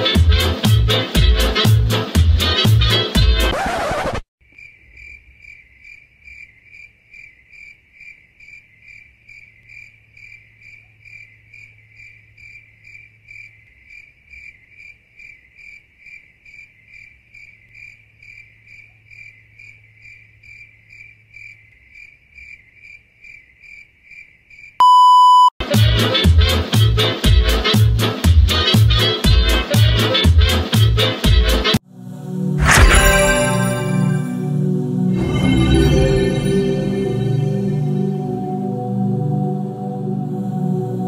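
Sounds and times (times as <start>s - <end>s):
crickets chirping: 4.4s - 24.8s.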